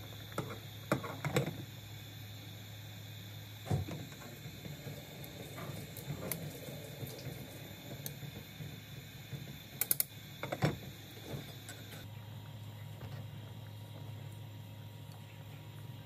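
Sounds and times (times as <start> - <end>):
gas stove hum: 0.0 - 16.0.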